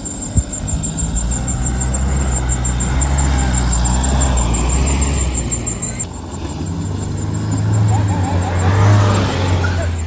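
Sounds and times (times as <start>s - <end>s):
suv engine driving over dirt: 0.0s - 10.0s.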